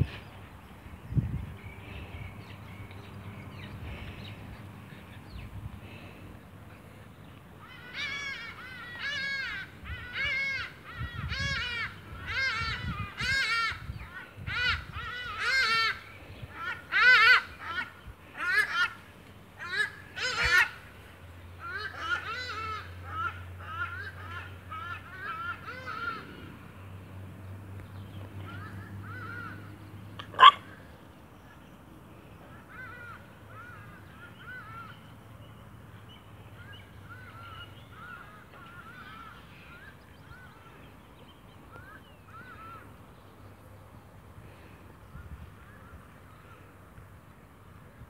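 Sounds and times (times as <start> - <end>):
high-pitched animal calls: 30.2 - 30.7.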